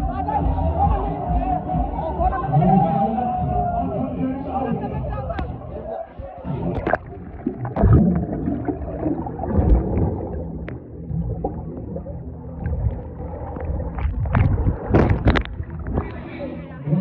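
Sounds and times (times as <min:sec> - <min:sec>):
dull low thumps: 0:06.5 - 0:16.3
water bubbling underwater: 0:06.5 - 0:17.0.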